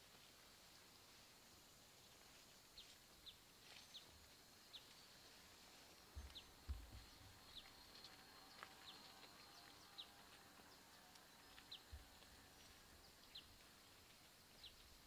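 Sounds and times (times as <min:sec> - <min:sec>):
faint bird chirping: 0:00.4 - 0:15.0
soft low thump: 0:06.2 - 0:07.3.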